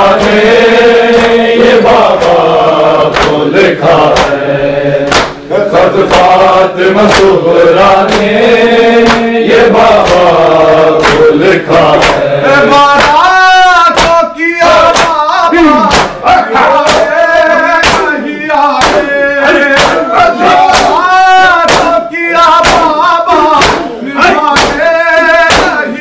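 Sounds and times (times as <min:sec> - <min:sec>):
men chanting a lament: 0:00.0 - 0:26.0
hands striking chests: 0:03.1 - 0:03.5, 0:04.1 - 0:04.4, 0:05.0 - 0:06.3, 0:07.0 - 0:07.4, 0:09.0 - 0:09.3, 0:10.0 - 0:10.4, 0:11.0 - 0:11.3, 0:12.0 - 0:12.2, 0:12.9 - 0:13.2, 0:13.9 - 0:17.2, 0:17.8 - 0:18.1, 0:18.8 - 0:19.1, 0:19.7 - 0:21.0, 0:21.6 - 0:22.0, 0:22.6 - 0:25.8.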